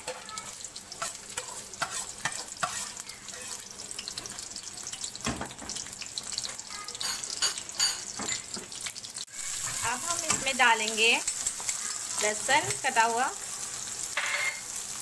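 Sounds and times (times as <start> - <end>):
onions sizzling in hot oil: 0.0 - 15.0.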